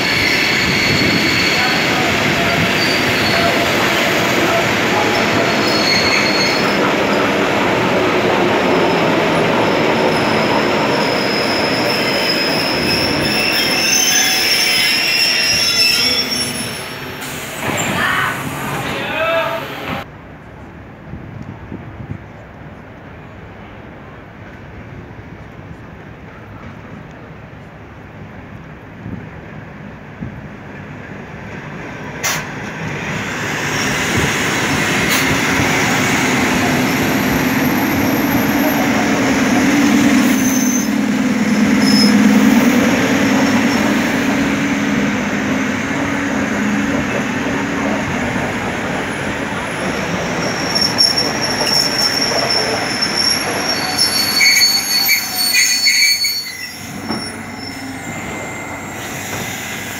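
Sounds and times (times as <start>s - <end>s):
high-pitched brake squeals: 0.0s - 3.7s, 5.0s - 6.8s, 10.1s - 17.9s, 40.2s - 42.2s, 50.3s - 59.9s
train wheels rumbling on rails: 24.0s - 59.9s.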